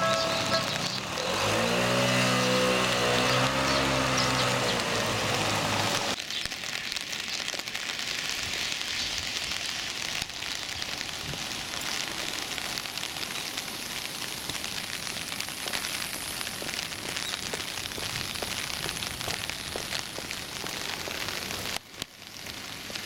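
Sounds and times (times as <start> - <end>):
low engine hum: 0.0 - 6.2
rain on a wet road: 0.0 - 23.0.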